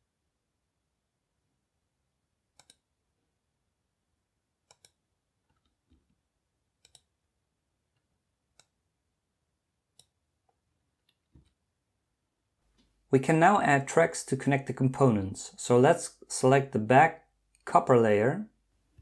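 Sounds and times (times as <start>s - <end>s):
computer mouse clicks: 2.6s - 2.8s, 4.6s - 6.0s, 6.8s - 7.1s, 8.0s - 8.8s, 9.9s - 10.2s.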